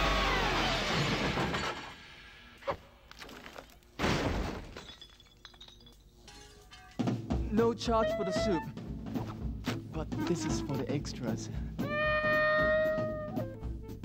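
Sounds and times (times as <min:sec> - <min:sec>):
glass smashing: 0:03.2 - 0:07.0.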